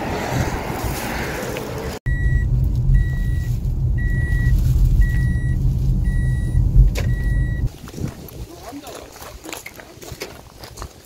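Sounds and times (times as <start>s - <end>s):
car cabin rumble: 2.1s - 7.7s
electronic warning beep: 2.1s - 7.7s.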